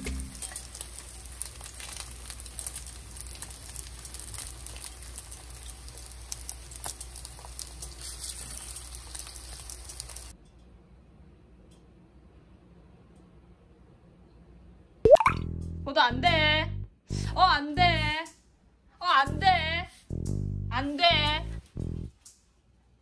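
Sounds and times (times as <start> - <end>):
food frying in oil: 0.0 - 10.4.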